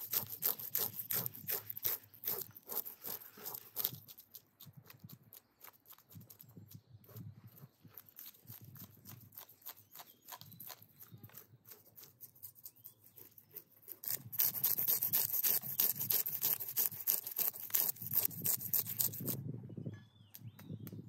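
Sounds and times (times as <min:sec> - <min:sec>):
knife scraping fish scales: 0:00.0 - 0:04.3, 0:11.4 - 0:19.4.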